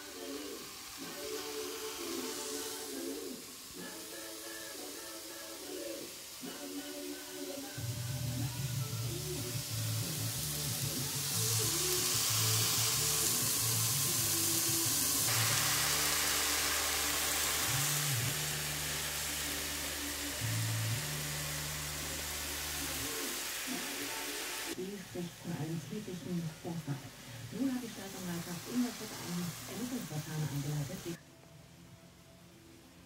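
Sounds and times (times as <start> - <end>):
meat sizzling in a frying pan: 0.0 - 24.8, 27.6 - 31.1
background music with bass line: 7.5 - 24.8.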